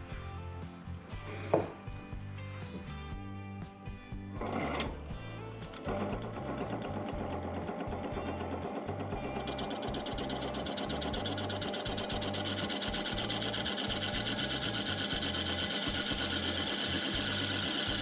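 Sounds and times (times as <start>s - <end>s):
wood lathe cutting bowl: 4.4s - 5.0s, 5.7s - 18.0s.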